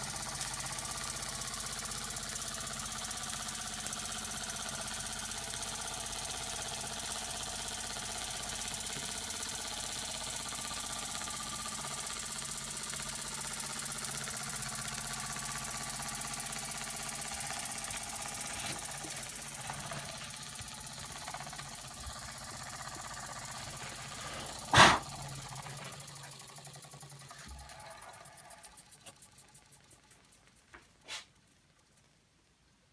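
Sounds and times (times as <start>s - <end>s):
toy steam engine chuffing: 0.0s - 31.9s
sharp loud knock: 24.7s - 25.1s.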